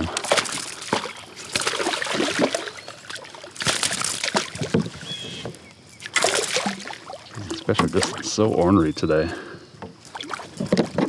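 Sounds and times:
fish splashing at surface: 0:00.0 - 0:05.0, 0:06.0 - 0:08.4.

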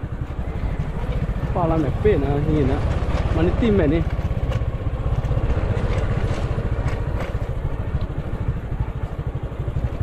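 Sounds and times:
rattles on rough dirt track: 0:00.0 - 0:10.0
small motorcycle engine running: 0:00.0 - 0:10.0.

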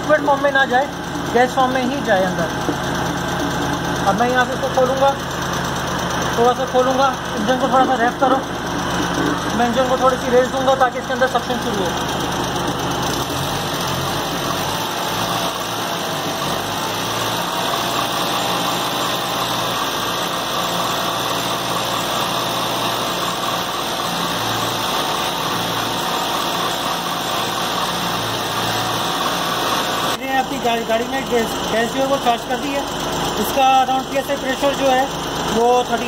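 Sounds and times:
car engine running: 0:00.0 - 0:36.0.

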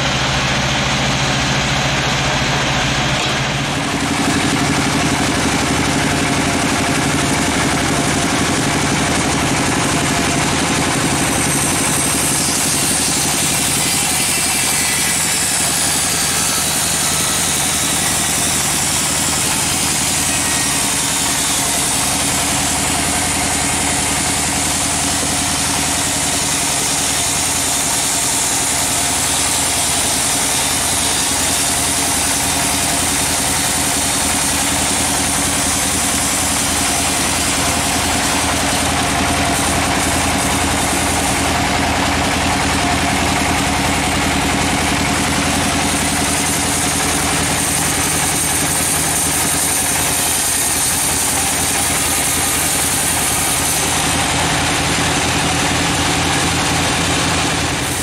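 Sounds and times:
sawmill machine drone: 0:00.0 - 0:58.0
saw blade hissing through wood: 0:10.9 - 0:42.1, 0:44.7 - 0:54.3.

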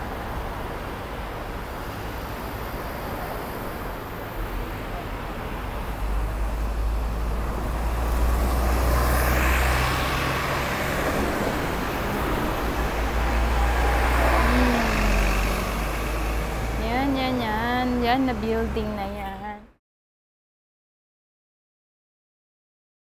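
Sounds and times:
heavy vehicle engine rumble: 0:00.0 - 0:19.3
passing cars and buses: 0:00.0 - 0:19.8.

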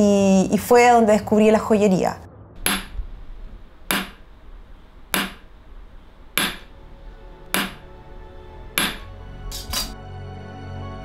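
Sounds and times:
hammer striking metal punch: 0:02.6 - 0:03.0, 0:03.9 - 0:04.2, 0:05.1 - 0:05.5, 0:06.4 - 0:06.8, 0:07.4 - 0:07.9, 0:08.8 - 0:09.9.

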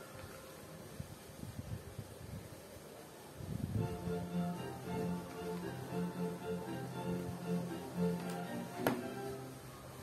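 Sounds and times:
instrumental music with held notes: 0:03.8 - 0:10.0.

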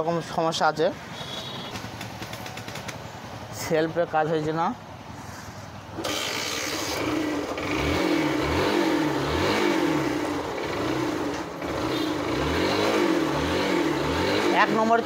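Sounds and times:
motorcycle engine revving: 0:05.9 - 0:15.0
electric starter cranking: 0:06.0 - 0:14.5.

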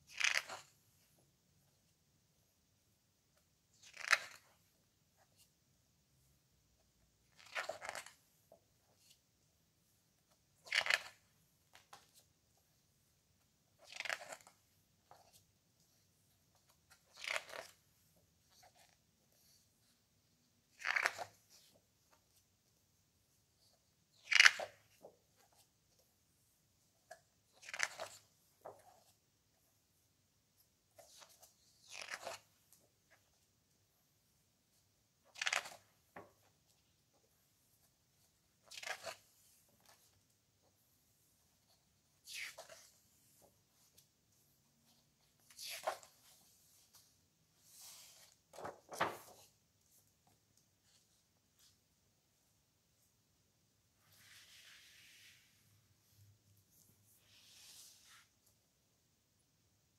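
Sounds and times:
book pages turning: 0:00.1 - 0:00.8, 0:03.8 - 0:05.5, 0:07.3 - 0:09.2, 0:10.2 - 0:12.4, 0:13.4 - 0:19.6, 0:20.7 - 0:22.4, 0:23.6 - 0:26.1, 0:27.0 - 0:29.2, 0:30.6 - 0:33.5, 0:34.7 - 0:51.8.

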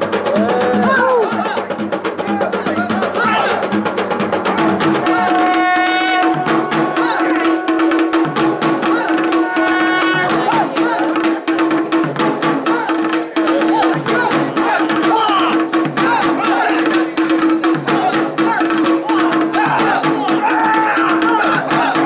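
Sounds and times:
drum ensemble fast rhythm: 0:00.0 - 0:22.0
higher melodic line: 0:04.5 - 0:11.6.

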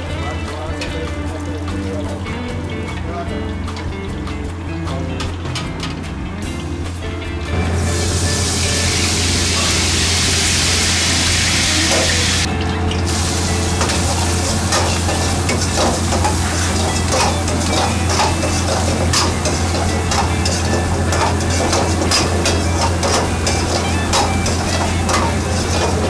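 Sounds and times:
low hum: 0:05.8 - 0:26.0
vegetables sizzling in hot oil: 0:07.7 - 0:12.5, 0:13.1 - 0:26.0
metal ladle scraping a wok: 0:13.8 - 0:26.0.

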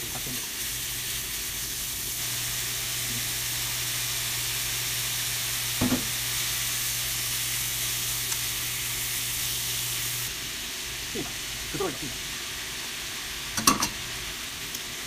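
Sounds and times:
beef sizzling in frying pan: 0:00.0 - 0:15.0
carrots knocking into pan: 0:05.8 - 0:06.2.

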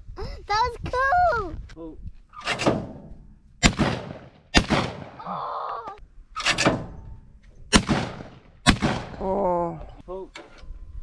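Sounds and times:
shotgun bangs: 0:03.6 - 0:05.2, 0:07.7 - 0:09.3.

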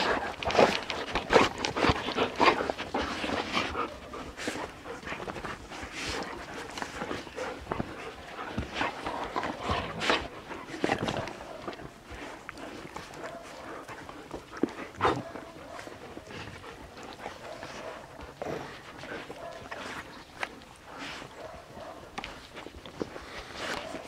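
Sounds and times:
dogs panting and licking: 0:00.0 - 0:24.0
dogs sniffing: 0:00.0 - 0:24.0.

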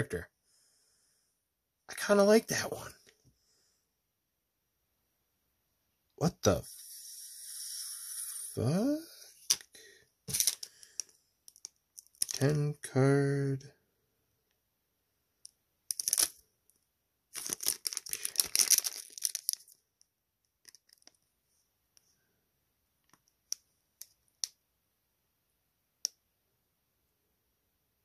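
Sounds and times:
card packaging crinkling: 0:10.3 - 0:12.5, 0:15.9 - 0:16.4, 0:17.3 - 0:19.8, 0:20.6 - 0:21.2.

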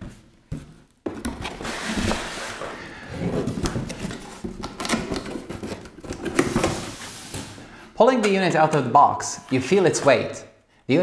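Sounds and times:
cardboard rustling and scraping: 0:00.0 - 0:07.8.

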